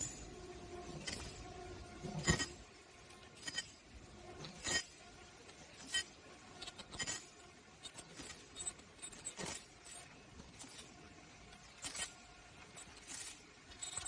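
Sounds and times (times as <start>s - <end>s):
machine running with light clicks: 0.0s - 14.0s.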